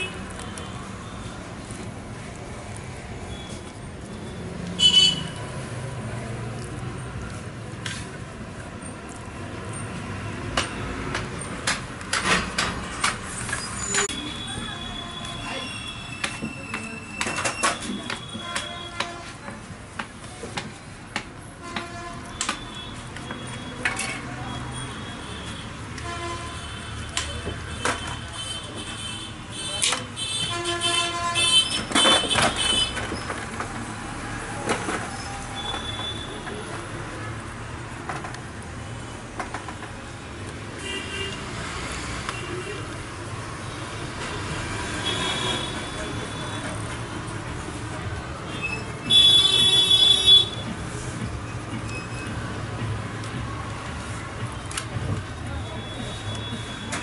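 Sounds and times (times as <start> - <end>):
street traffic: 0.0 - 57.0
car horns honking: 4.8 - 5.4, 48.5 - 50.7.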